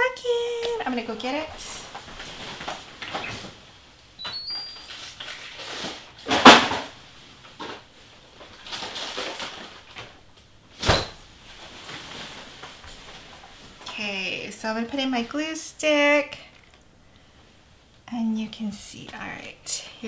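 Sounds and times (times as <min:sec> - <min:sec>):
cupboard opening and shutting: 0:04.2 - 0:07.9, 0:08.8 - 0:11.3.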